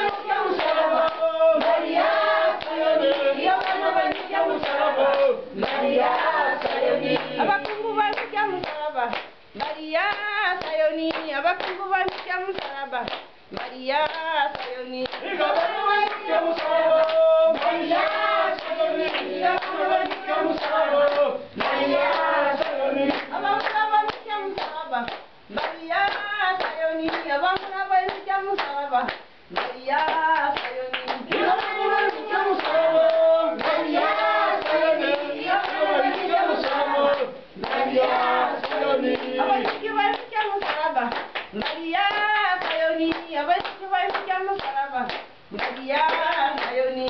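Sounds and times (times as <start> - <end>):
congregation singing a hymn: 0.0 - 8.6, 14.6 - 24.5, 29.6 - 40.6
hand clapping on the beat: 0.0 - 47.0.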